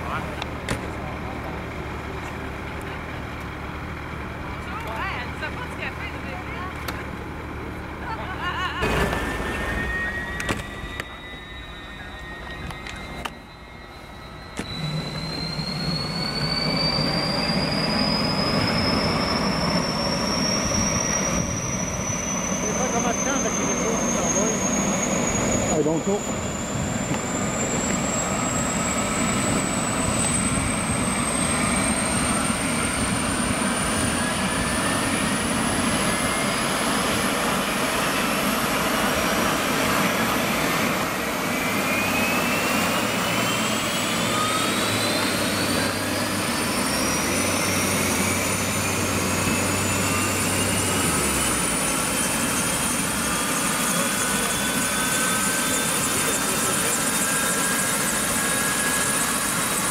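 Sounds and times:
helicopter engine whining: 0.0 - 59.9.

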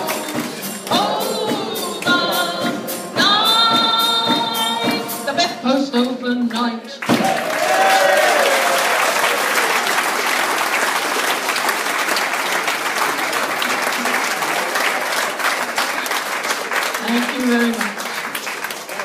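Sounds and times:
audience applauding: 7.0 - 19.0.

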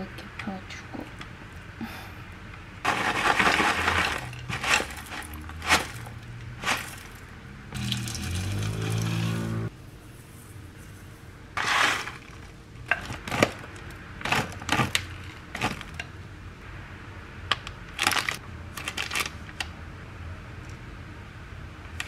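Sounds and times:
dry toppings pouring into bowl: 7.8 - 9.4.

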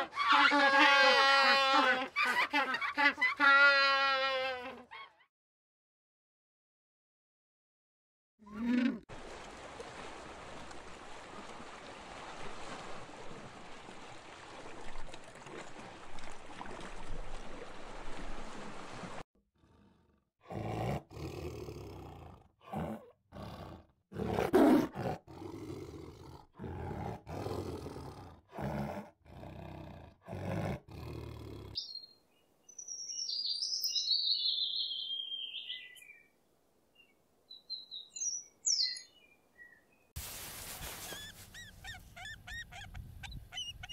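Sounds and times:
tiger roaring and growling: 19.6 - 31.8
bird high call: 33.0 - 36.2
steady hiss: 40.2 - 41.2.

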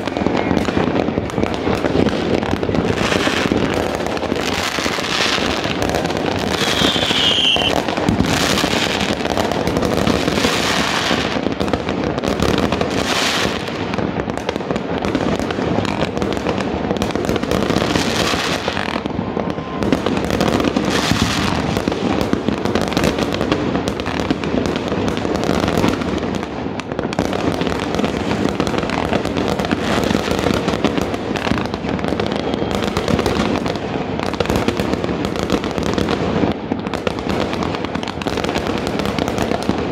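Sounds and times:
fireworks bangs and crackling: 0.0 - 39.9
falling firework whistle: 6.2 - 9.0, 18.5 - 21.5, 31.4 - 33.3.

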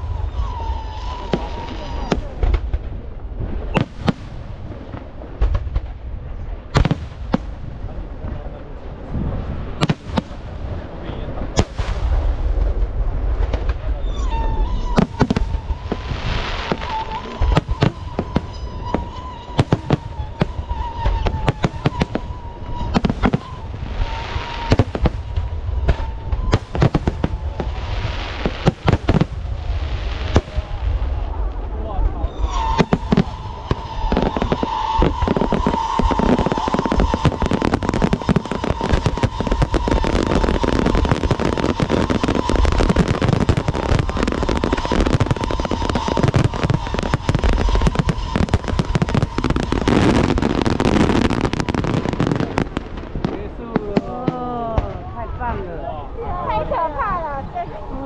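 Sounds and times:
fireworks bangs and booms: 0.0 - 58.0.

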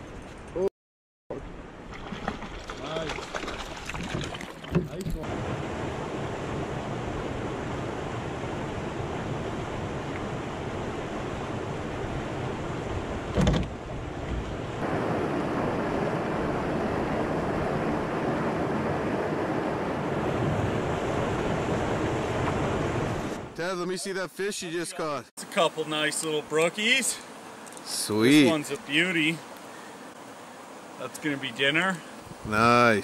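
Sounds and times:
short thump: 13.3 - 14.4.

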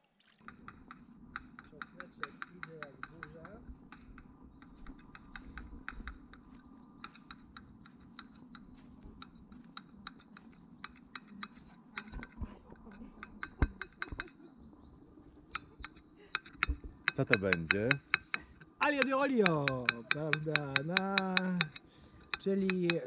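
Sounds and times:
footsteps on pine needles and twigs: 6.5 - 10.0.

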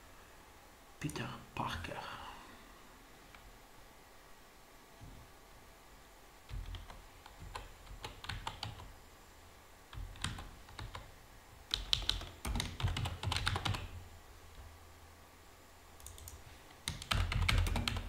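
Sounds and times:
typing on keyboard: 6.5 - 8.9, 9.9 - 11.1, 11.7 - 14.0, 16.0 - 18.0.

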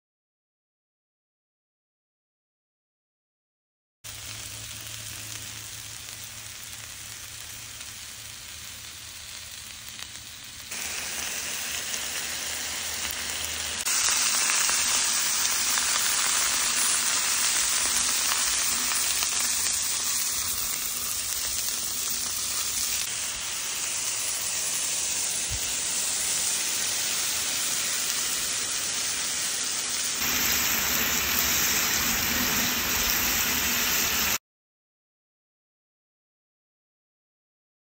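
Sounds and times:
food sizzling on a griddle: 4.1 - 34.4.

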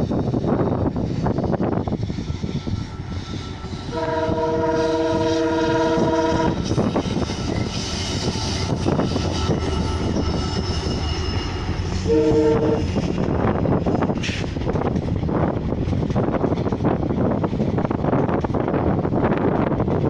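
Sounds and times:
train coaches on rails: 0.0 - 20.0
locomotive engine rumble: 0.1 - 20.0
locomotive horn: 3.4 - 6.9, 9.5 - 13.0.

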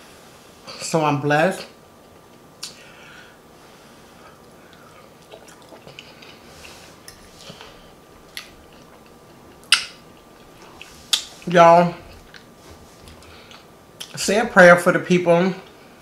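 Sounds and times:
chewing soft food: 4.3 - 14.2.

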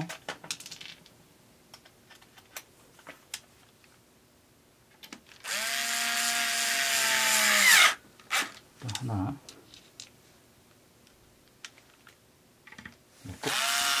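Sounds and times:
electric screwdriver driving screw: 5.4 - 8.5, 13.4 - 14.0.

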